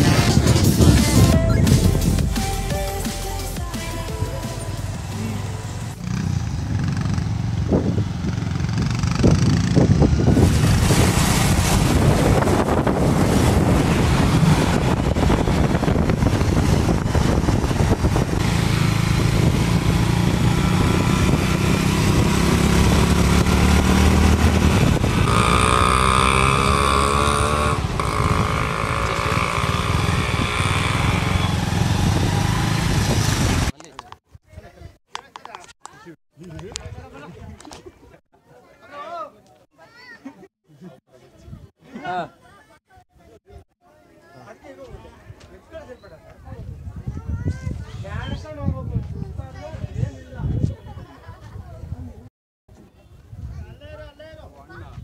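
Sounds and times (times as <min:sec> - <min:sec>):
wind rushing over microphone: 0:00.0 - 0:01.7, 0:06.4 - 0:33.7, 0:46.4 - 0:52.3, 0:53.1 - 0:55.0
motorcycle engine running: 0:04.0 - 0:10.9, 0:12.5 - 0:33.7.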